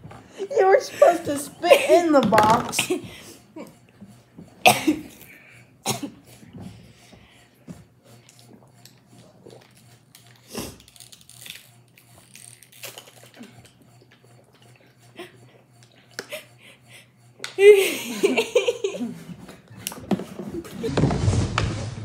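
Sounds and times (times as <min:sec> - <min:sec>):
coughs: 0:04.6 - 0:06.5.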